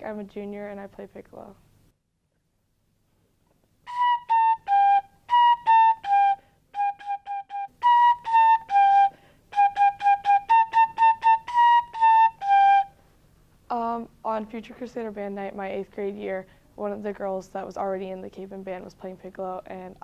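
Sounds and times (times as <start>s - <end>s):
piccolo playing lively tune: 3.8s - 13.0s.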